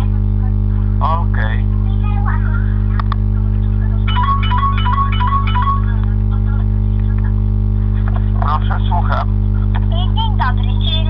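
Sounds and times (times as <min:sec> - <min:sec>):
steady electrical hum: 0:00.0 - 0:11.0
mobile phone ringtone: 0:04.1 - 0:06.0.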